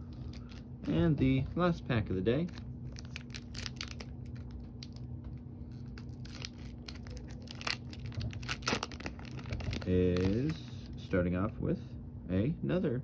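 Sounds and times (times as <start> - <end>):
wrapper crinkling and tearing: 0.0 - 1.4, 2.4 - 10.8.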